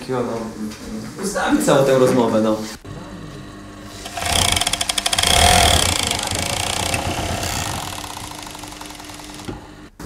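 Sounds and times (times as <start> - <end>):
sewing machine stitching: 4.0 - 9.5.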